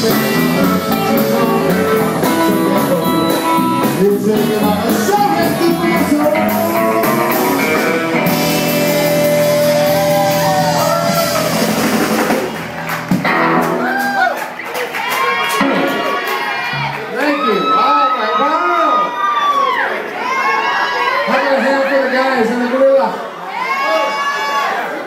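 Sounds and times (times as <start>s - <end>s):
man singing: 0.0s - 8.0s
drums: 0.0s - 17.1s
electric guitar: 0.0s - 17.1s.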